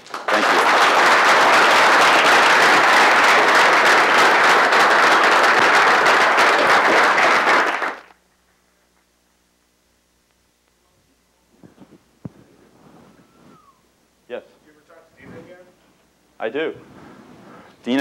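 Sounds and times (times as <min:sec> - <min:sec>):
crowd applauding: 0:00.0 - 0:08.2.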